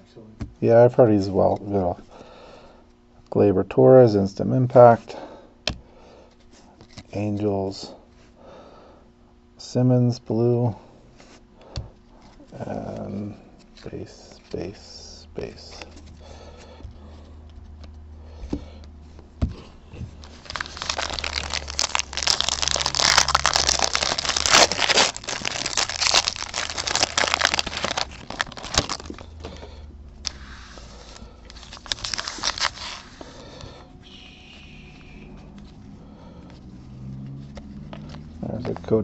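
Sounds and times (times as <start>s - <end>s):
foil wrapper tearing and crinkling: 20.2s - 29.4s, 31.5s - 33.2s.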